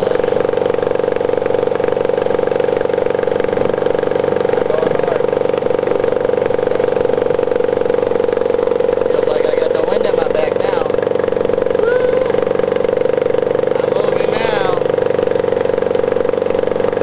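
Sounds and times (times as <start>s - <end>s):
two-stroke outboard motor running: 0.0s - 17.0s.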